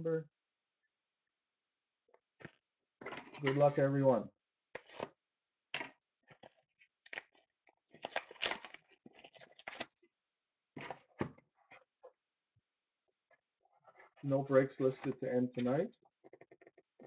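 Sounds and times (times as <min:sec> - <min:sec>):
plastic wrap crinkling and tearing: 0:07.1 - 0:10.0.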